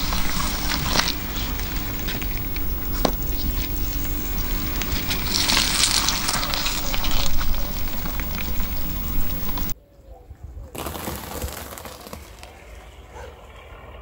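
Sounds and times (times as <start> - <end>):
grit crackling under tyre: 0.0 - 9.8
tyre rolling over brick paving: 0.0 - 9.8.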